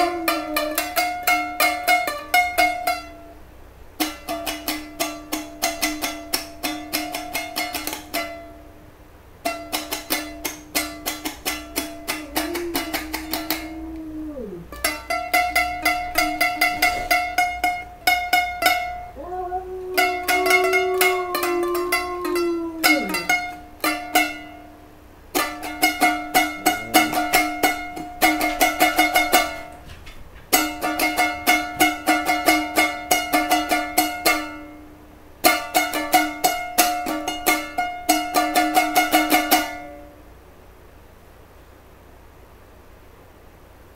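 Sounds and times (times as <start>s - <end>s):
dog howling: 0.0s - 1.5s, 12.0s - 15.1s, 19.1s - 23.7s, 26.4s - 28.0s
strummed small string instrument: 0.0s - 3.4s, 4.0s - 8.8s, 9.4s - 29.9s, 30.5s - 40.2s.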